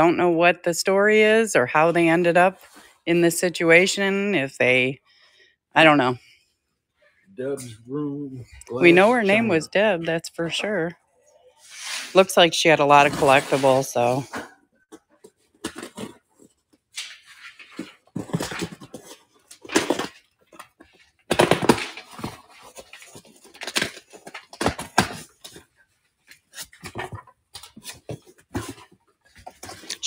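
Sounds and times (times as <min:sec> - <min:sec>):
paper rustling: 0:15.2 - 0:30.0.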